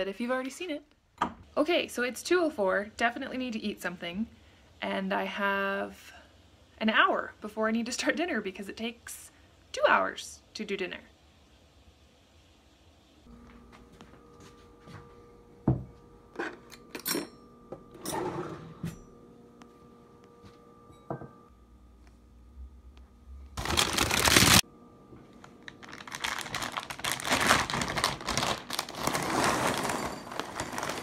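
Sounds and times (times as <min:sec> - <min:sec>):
dishes knocking and clinking: 0:21.0 - 0:21.4
dense crackling and rustling: 0:23.6 - 0:24.6, 0:25.4 - 0:31.0.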